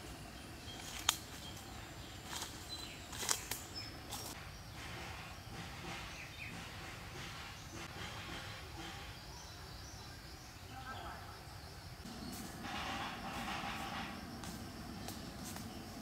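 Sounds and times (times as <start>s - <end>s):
dry leaves crackling underfoot: 0.0s - 4.4s, 13.3s - 16.0s.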